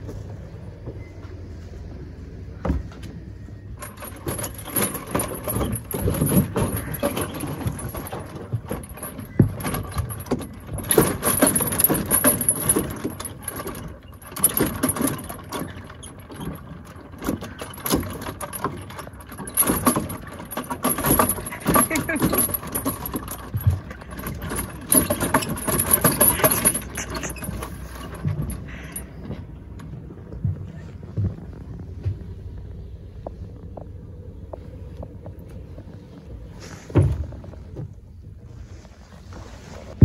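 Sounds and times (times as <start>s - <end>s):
steel chains jangling: 3.8s - 29.9s
wooden logs knocking underfoot: 3.8s - 40.0s
wind rumble: 22.4s - 40.0s
footsteps on wooden deck: 23.2s - 40.0s.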